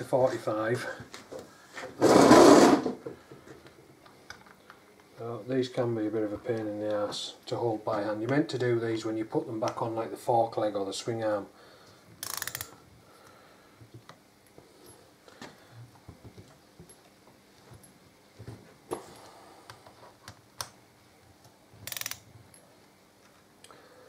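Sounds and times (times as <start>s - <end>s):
torque wrench ratchet clicking: 12.2s - 12.8s, 21.8s - 22.2s.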